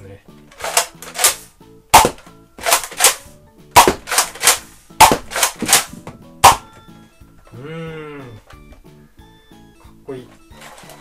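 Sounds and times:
toy blaster shots: 2.0 - 3.2, 3.8 - 6.7.

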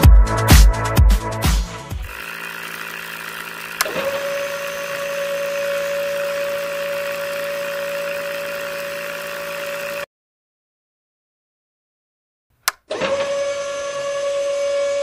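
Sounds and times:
small motors whining: 2.0 - 10.1, 12.9 - 15.0
water pump motor whirring: 2.0 - 10.1, 12.9 - 15.0
switch clicking: 12.6 - 12.9.

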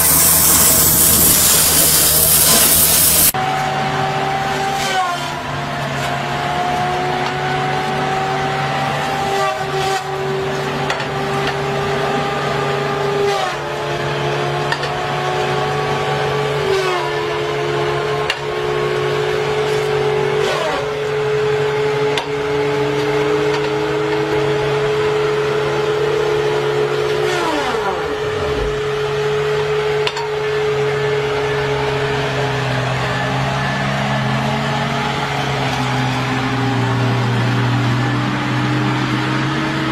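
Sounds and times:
diesel engine running: 0.0 - 3.3
disc saw whining: 0.0 - 3.4.

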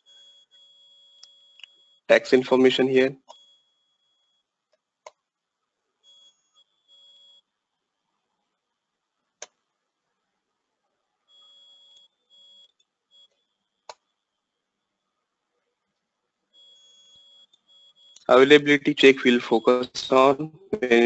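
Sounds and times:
faint short electronic beeps: 16.6 - 21.0.

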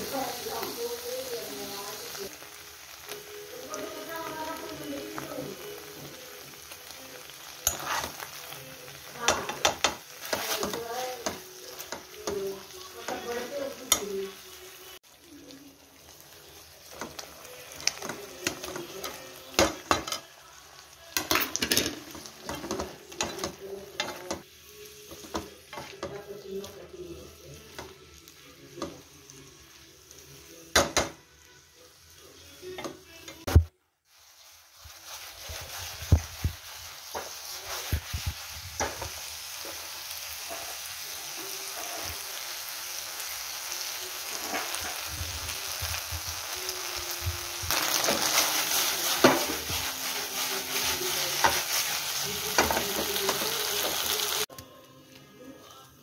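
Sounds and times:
sauce sizzling: 0.0 - 56.0
spatula scraping and tapping pan: 7.6 - 8.3, 21.2 - 24.5, 35.4 - 39.8, 44.3 - 45.0, 47.9 - 54.0.

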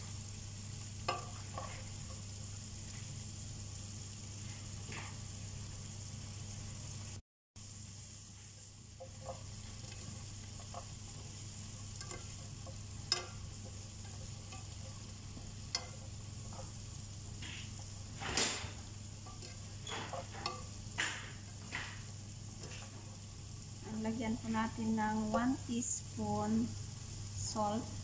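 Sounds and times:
vegetables sizzling in a pan: 0.0 - 28.0
spoon scraping and knocking a pan: 1.0 - 2.3, 9.0 - 23.2
steady low hum: 7.6 - 28.0.

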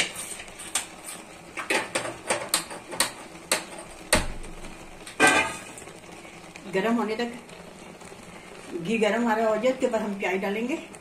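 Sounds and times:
frying pan scraping on stove grate: 0.0 - 7.5.

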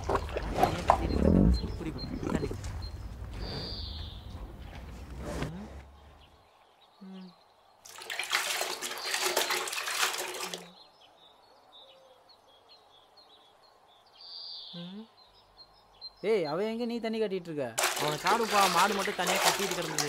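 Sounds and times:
birds chirping faintly: 0.0 - 20.0
water splashing from ladle: 7.9 - 10.8, 17.8 - 20.0.

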